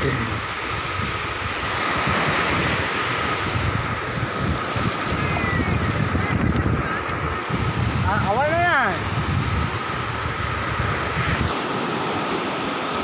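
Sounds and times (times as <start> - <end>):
sea waves washing in: 0.0 - 13.0
wind buffeting microphone: 0.0 - 13.0.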